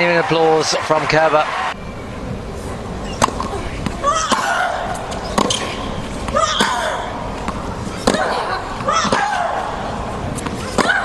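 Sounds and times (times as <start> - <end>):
tennis racquet hitting ball: 3.1 - 11.0.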